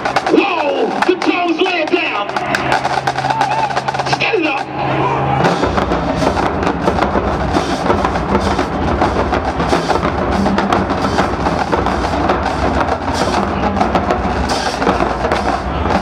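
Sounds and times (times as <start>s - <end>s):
snare and bass drums: 0.0s - 4.7s, 5.4s - 16.0s
marching band playing: 0.0s - 16.0s.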